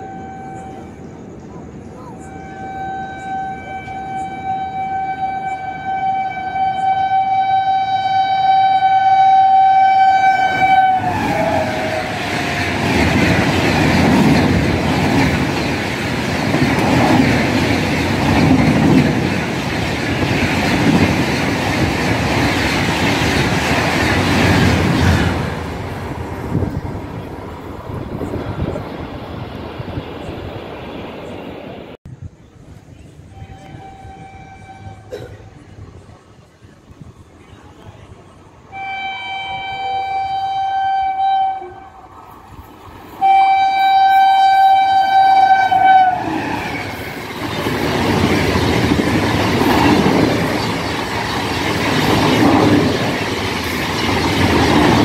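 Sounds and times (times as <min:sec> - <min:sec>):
locomotive horn blast: 0:00.0 - 0:01.1, 0:02.2 - 0:13.4, 0:33.4 - 0:35.4, 0:38.7 - 0:42.0, 0:43.2 - 0:47.0
train coaches rumbling by: 0:00.0 - 0:55.0
wheels clicking over rail joints: 0:46.4 - 0:55.0.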